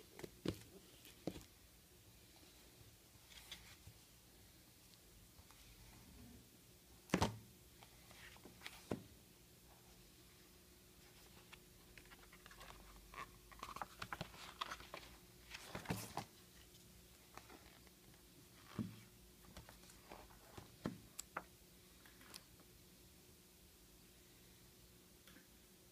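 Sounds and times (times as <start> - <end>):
paper rustling: 11.2 - 16.3.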